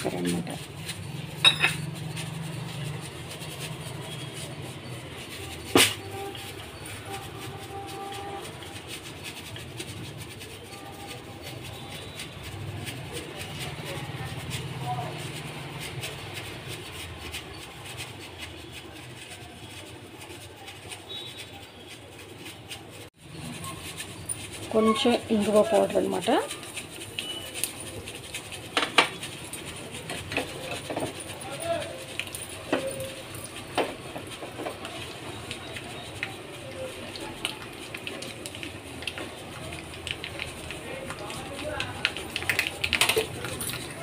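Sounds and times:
spices sizzling in hot oil: 0:00.0 - 0:22.4, 0:23.0 - 0:44.0
seeds sizzling and popping in oil: 0:33.9 - 0:43.8.

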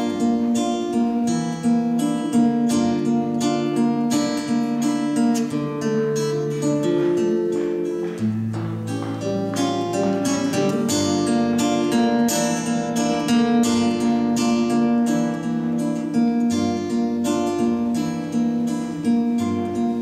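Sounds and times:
classical guitar playing: 0:00.0 - 0:20.0.

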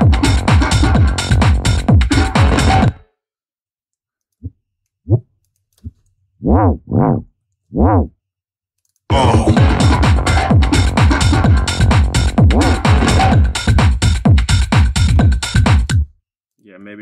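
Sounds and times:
electronic dance track: 0:00.0 - 0:02.9, 0:09.1 - 0:16.0
synth bass notes bending in pitch: 0:06.4 - 0:08.1, 0:09.1 - 0:13.7.

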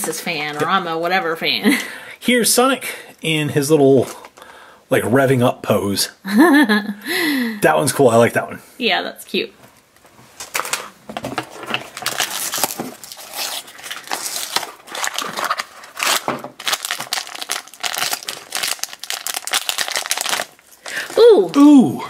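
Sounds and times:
foil bag crinkling: 0:10.4 - 0:21.7
cardboard box tearing: 0:11.5 - 0:20.4.

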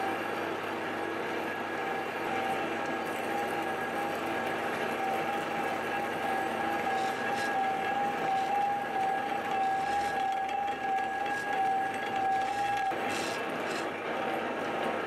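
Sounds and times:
metal lathe cutting: 0:02.2 - 0:15.0.

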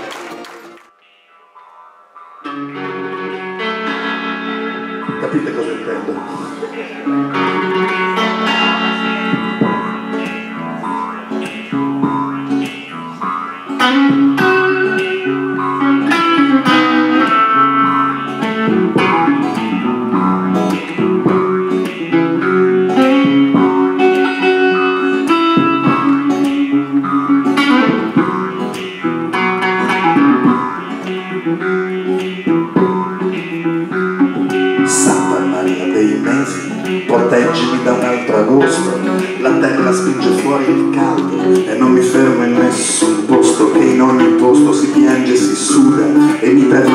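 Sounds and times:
plucked guitars: 0:00.0 - 0:46.9
double bass walking line: 0:11.7 - 0:13.4, 0:14.0 - 0:46.9.

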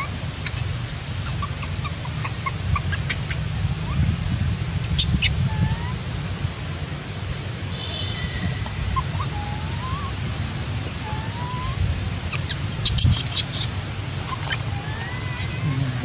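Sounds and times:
sharp high chirps: 0:07.7 - 0:10.2
rising whistle-like animal calls: 0:07.8 - 0:10.2, 0:11.0 - 0:11.8.

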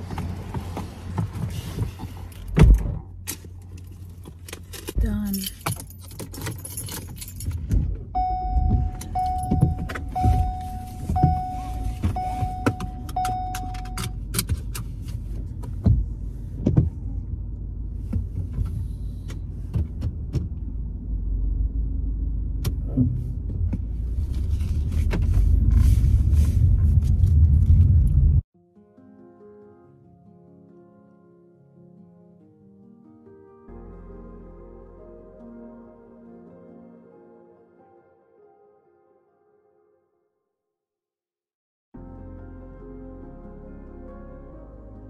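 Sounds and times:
engine and road rumble: 0:00.0 - 0:28.5
car warning chime beeping: 0:08.2 - 0:14.2.

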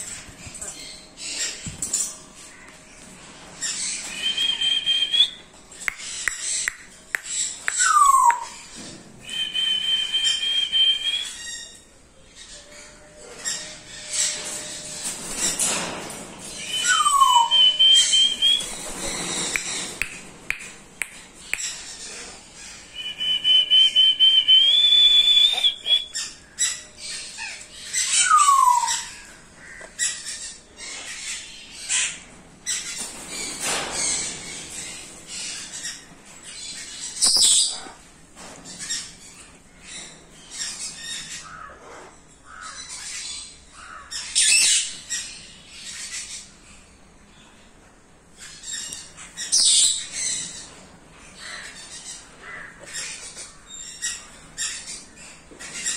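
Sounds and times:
cockatoos whistling: 0:04.0 - 0:05.4, 0:07.7 - 0:08.6, 0:09.2 - 0:11.4, 0:16.7 - 0:20.1, 0:23.0 - 0:26.2.

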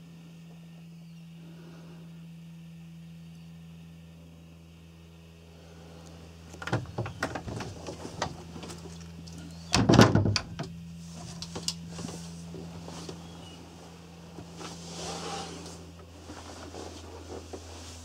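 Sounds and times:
steady low hum: 0:00.0 - 0:18.0
knocks and thuds on wooden door: 0:09.7 - 0:10.7.

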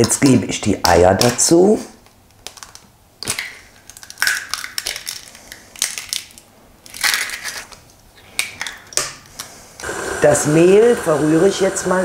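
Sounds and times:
eggshells cracking: 0:02.2 - 0:09.5.

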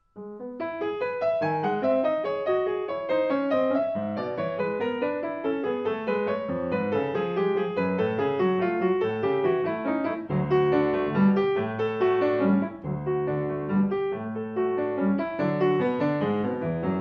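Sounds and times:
solo classical piano: 0:00.0 - 0:17.0
deep piano bass notes: 0:05.8 - 0:17.0.

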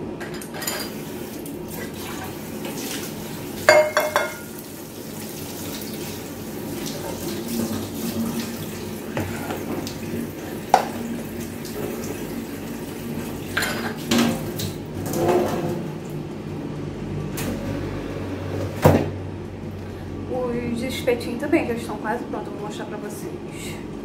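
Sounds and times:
kitchenware knocks and clatters: 0:03.7 - 0:04.5, 0:13.6 - 0:15.8.

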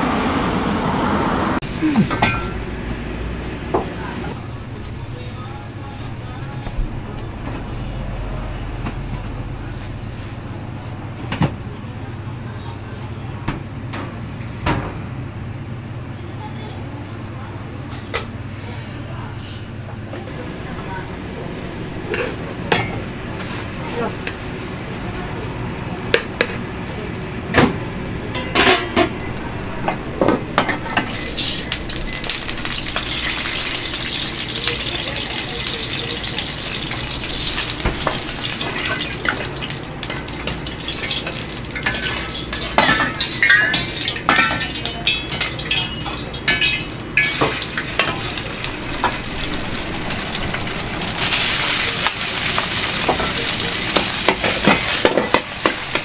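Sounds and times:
food sizzling in a wok: 0:20.5 - 0:56.0.

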